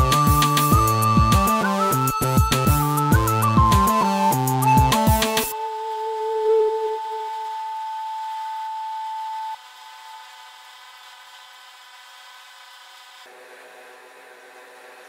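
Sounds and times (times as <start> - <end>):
steady high machine tone: 0.0 - 12.1
quiet machine whine: 5.5 - 15.0.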